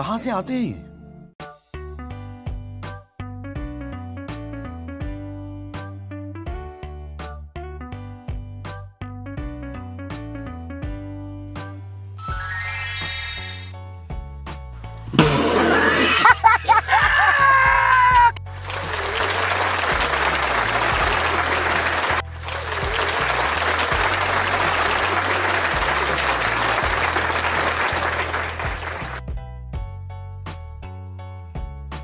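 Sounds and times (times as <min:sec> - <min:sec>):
comedic wavering sound effect: 0:12.2 - 0:13.8
applause: 0:18.4 - 0:29.2.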